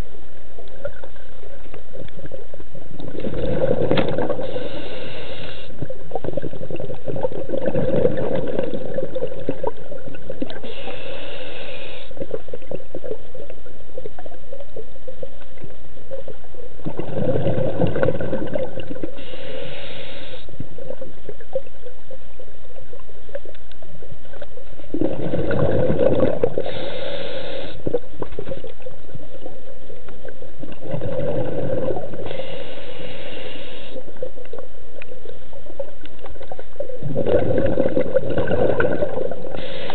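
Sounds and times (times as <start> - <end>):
exhaled bubbles gurgling: 0.0 - 39.9
regulator hiss: 4.3 - 5.9, 10.5 - 12.5, 19.0 - 20.7, 26.4 - 28.6, 32.1 - 34.3, 39.4 - 39.9.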